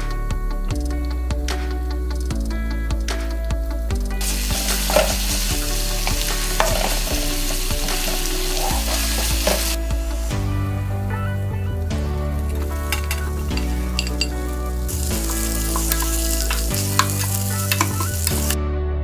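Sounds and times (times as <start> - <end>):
background music: 0.0 - 19.0
food sizzling in hot oil: 4.2 - 10.6, 12.3 - 18.6.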